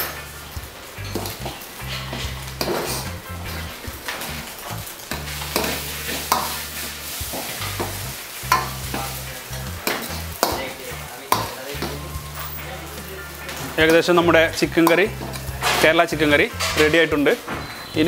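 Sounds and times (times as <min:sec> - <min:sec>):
thick curry bubbling: 0:00.0 - 0:16.3
steady sizzle: 0:00.0 - 0:18.0
ladle scraping and knocking pan: 0:01.0 - 0:12.5, 0:14.8 - 0:17.1.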